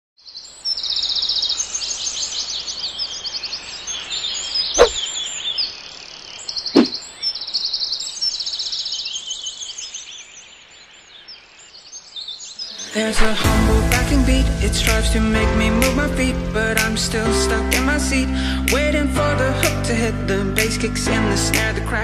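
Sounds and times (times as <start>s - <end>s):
songbirds chirping and trilling: 0.2s - 13.3s
sharp thumps: 4.8s - 5.0s, 6.8s - 7.0s.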